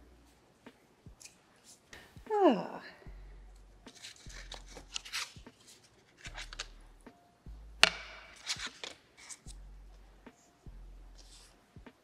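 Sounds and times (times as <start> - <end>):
paper rustling: 3.9 - 6.8, 8.3 - 9.5.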